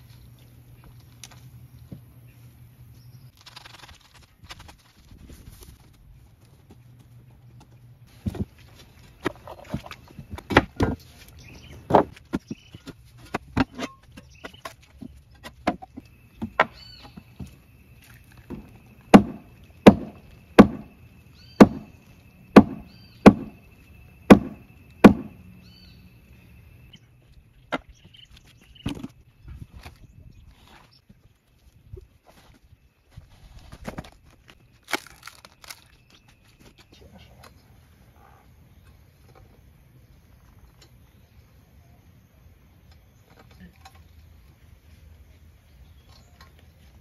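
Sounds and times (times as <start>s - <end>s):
machete chopping wooden post: 18.5s - 21.0s, 21.6s - 22.0s, 22.6s - 23.6s, 24.3s - 25.4s.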